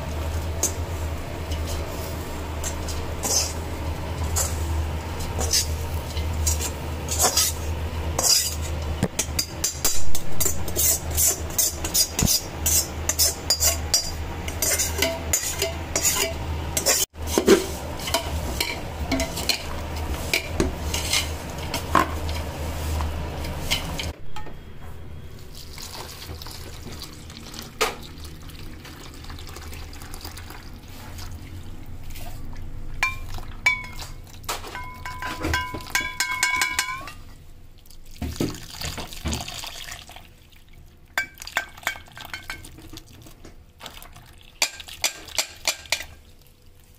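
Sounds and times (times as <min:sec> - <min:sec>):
metal utensil scraping steel pot: 0:02.6 - 0:03.6, 0:05.3 - 0:22.4.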